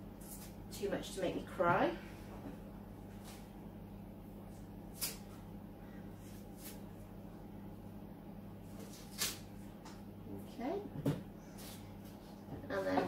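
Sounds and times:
low electrical hum: 0:00.0 - 0:13.0
onion skin crackling: 0:04.9 - 0:05.4, 0:08.8 - 0:09.6.

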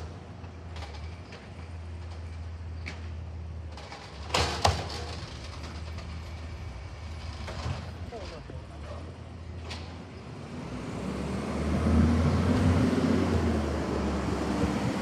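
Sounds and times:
loud bangs of trash cart: 0:04.2 - 0:05.3.

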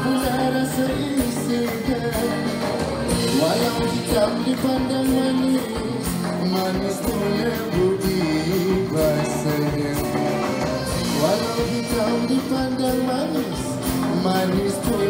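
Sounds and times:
live band playing: 0:00.0 - 0:15.0
man singing into a microphone: 0:00.0 - 0:15.0
steady drum beat: 0:00.0 - 0:15.0.

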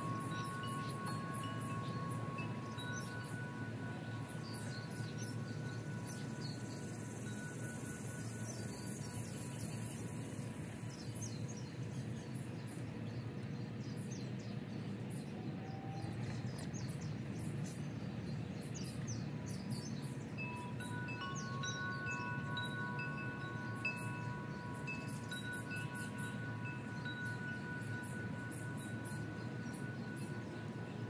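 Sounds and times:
wind chime ringing: 0:00.0 - 0:10.7, 0:20.4 - 0:31.0
low outdoor rumble: 0:00.0 - 0:31.0.

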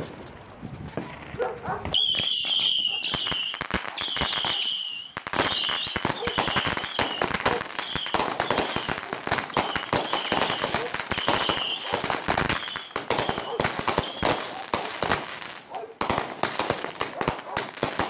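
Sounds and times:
firework pops and crackling: 0:00.0 - 0:18.0
firework whistles: 0:01.9 - 0:15.2.

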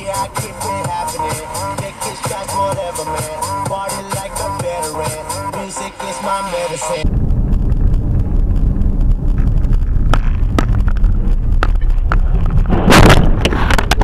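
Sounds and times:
vehicle road noise rumble: 0:06.9 - 0:14.0
wind buffeting microphone: 0:07.0 - 0:14.0.

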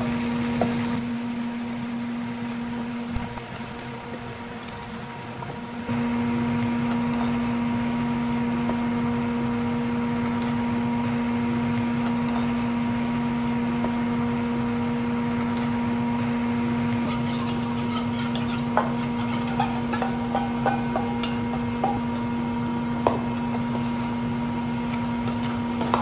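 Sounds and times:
kitchen appliance humming: 0:00.0 - 0:26.0
utensil clinking on a pan: 0:17.1 - 0:22.0.

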